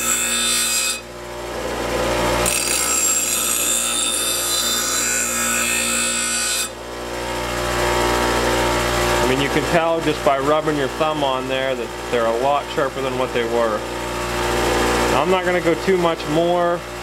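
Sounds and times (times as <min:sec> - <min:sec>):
metal blade grinding on wheel: 0:00.0 - 0:06.8
bench grinder motor humming: 0:00.0 - 0:17.0.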